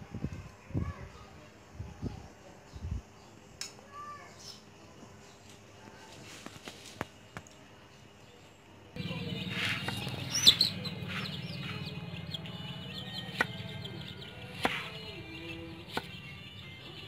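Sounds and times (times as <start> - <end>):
small birds chirping: 0.8 - 17.0
chickens clucking: 9.0 - 12.4
steady low hum: 9.0 - 16.8.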